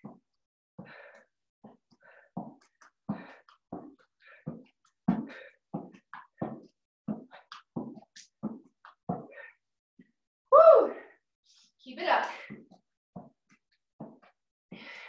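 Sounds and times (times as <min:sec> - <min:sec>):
heavy rhythmic breathing: 0:00.0 - 0:09.7, 0:14.0 - 0:15.0.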